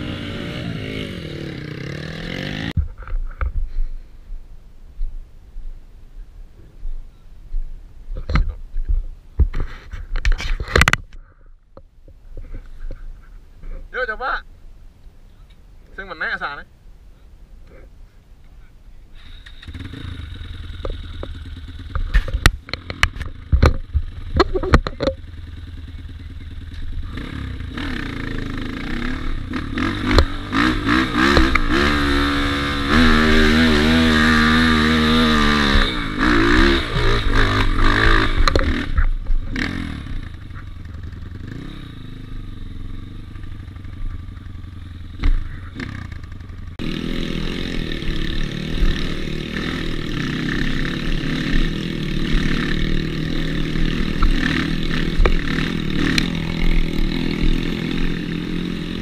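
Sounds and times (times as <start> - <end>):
dirt bike engine revving: 0.0 - 2.8, 19.2 - 59.0
sharp knocks and clatters: 20.8 - 25.3.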